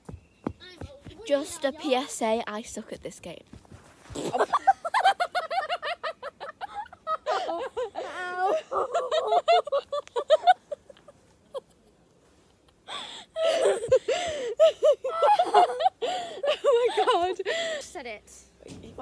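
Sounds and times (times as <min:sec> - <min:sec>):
girls laughing and giggling: 0:04.1 - 0:18.0.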